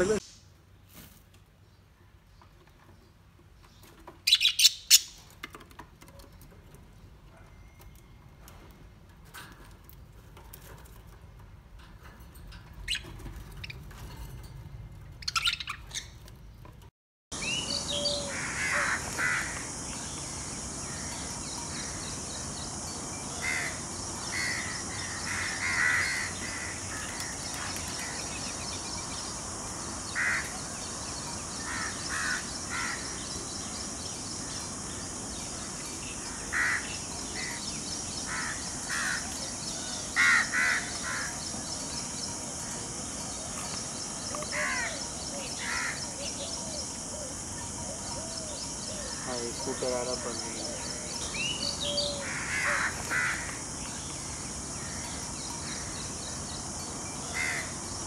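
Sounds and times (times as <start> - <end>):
parakeets squawking: 17.4 - 19.9, 23.3 - 28.6, 35.9 - 37.6
high-pitched insect drone: 17.4 - 58.0.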